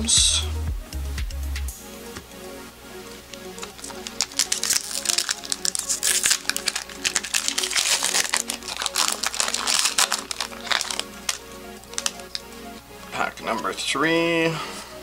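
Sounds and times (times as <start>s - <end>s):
foil wrapper tearing and crinkling: 3.5s - 12.5s.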